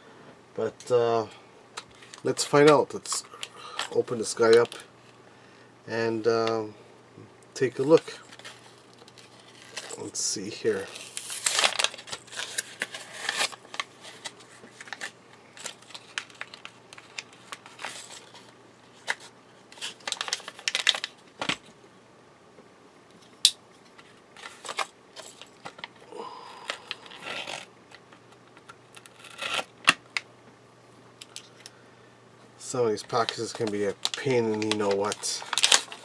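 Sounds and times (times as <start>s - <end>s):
plastic crinkling: 7.8s - 21.6s, 33.0s - 36.0s
cardboard tearing: 10.8s - 13.9s, 29.0s - 29.7s, 34.1s - 36.0s.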